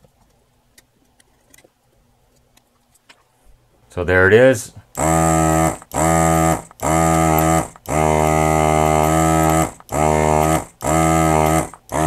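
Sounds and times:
desoldering pump humming: 4.8s - 12.0s.

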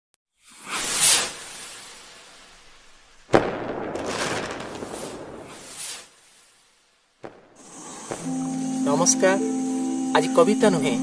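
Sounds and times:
rushing whooshes: 0.4s - 6.6s.

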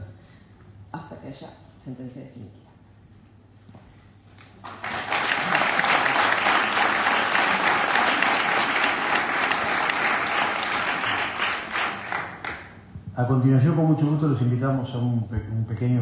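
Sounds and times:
audience applauding: 4.4s - 12.8s.

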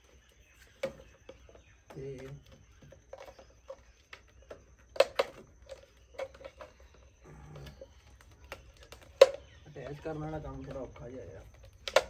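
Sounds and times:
plastic bottle clicks and knocks: 11.6s - 12.0s.

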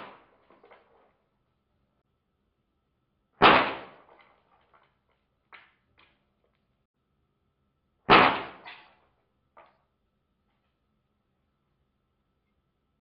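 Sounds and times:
air rifle shots: 0.0s - 0.3s, 3.4s - 4.1s, 8.1s - 8.9s.

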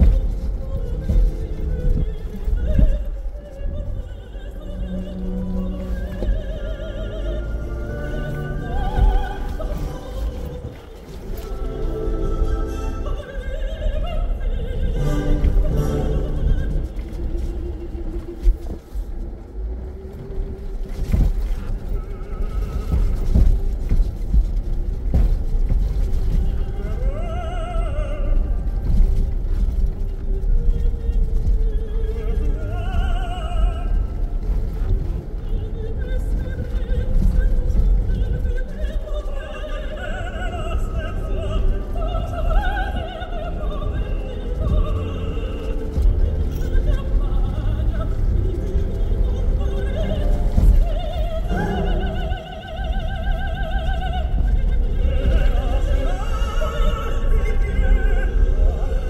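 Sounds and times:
knocks and thumps over bumps: 0.0s - 12.5s, 14.8s - 39.4s
engine and tyres rumbling: 0.0s - 59.0s
opera singing with vibrato: 0.0s - 59.0s.

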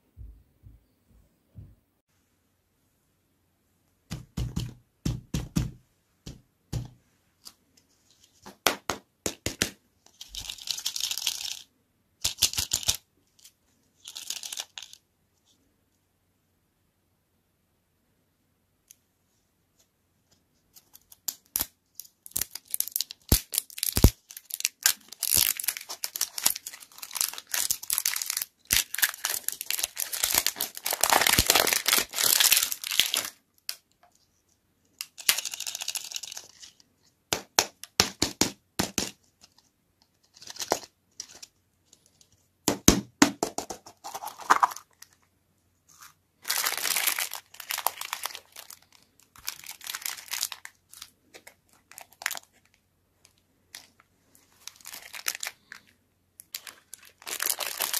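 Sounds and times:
plastic wrapper tearing: 20.9s - 33.8s, 35.0s - 36.8s, 44.0s - 45.2s, 45.9s - 52.8s, 53.7s - 57.9s
plastic bag crinkling: 22.0s - 33.4s, 35.0s - 36.8s, 44.0s - 45.2s, 45.9s - 52.8s, 53.7s - 57.9s.

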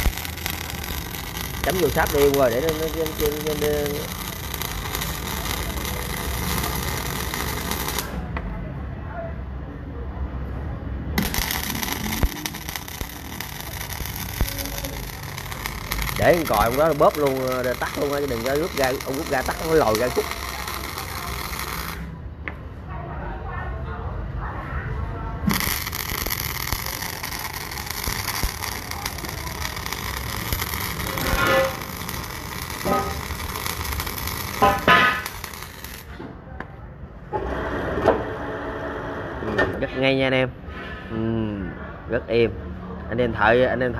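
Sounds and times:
sharp welding pops: 0.0s - 8.2s, 11.2s - 22.1s, 25.4s - 36.2s
welding arc crackling: 0.0s - 8.3s, 11.2s - 22.2s, 25.4s - 36.2s.

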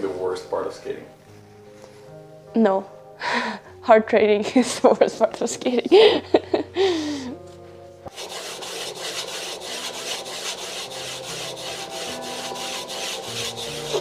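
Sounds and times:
stone scraping on steel blades: 8.1s - 14.0s.

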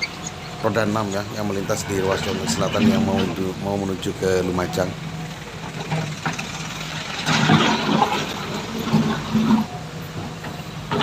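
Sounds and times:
slow cars and trucks passing: 0.0s - 11.0s.

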